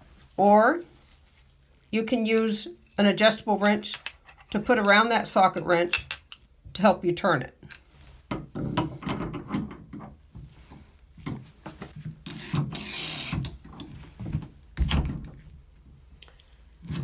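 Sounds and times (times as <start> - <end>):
metal wrench clicks and knocks: 3.6 - 6.4
valve scraping grind: 12.3 - 13.5.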